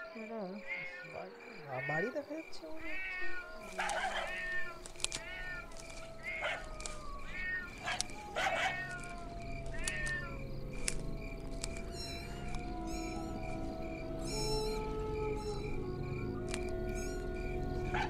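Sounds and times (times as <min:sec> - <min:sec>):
wavering animal cries: 0:00.0 - 0:18.0
steady low drone: 0:09.2 - 0:18.0.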